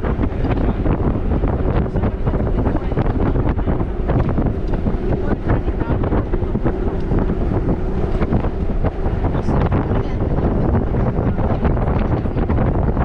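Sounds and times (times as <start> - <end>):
vehicle engine rumbling: 0.0 - 13.0
wind buffeting microphone: 0.0 - 13.0.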